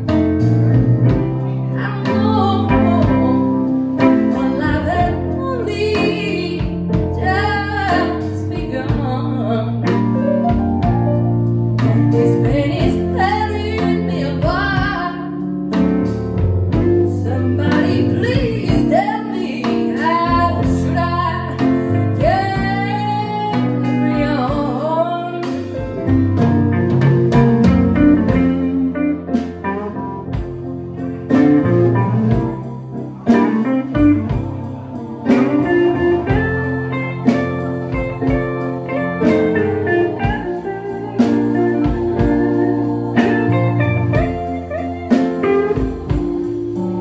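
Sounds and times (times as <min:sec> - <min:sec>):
organ chords: 0:00.0 - 0:14.8, 0:25.4 - 0:47.0
drum kit: 0:00.0 - 0:47.0
electric guitar lead: 0:00.0 - 0:47.0
electric keyboard: 0:00.0 - 0:47.0.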